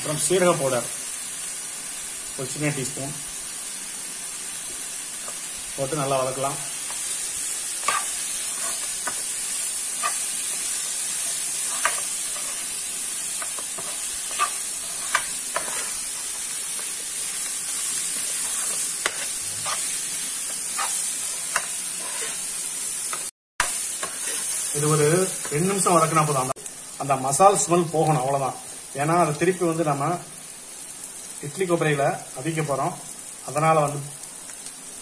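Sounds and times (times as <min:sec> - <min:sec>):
vegetables sizzling in a pan: 0:00.0 - 0:35.0
spatula clicking and scraping pan: 0:06.8 - 0:24.7.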